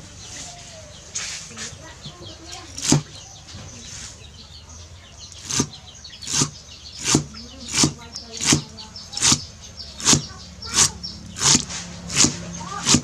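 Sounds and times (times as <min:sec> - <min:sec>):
cleaver chopping herbs on wood: 0:02.8 - 0:03.2, 0:05.4 - 0:13.0.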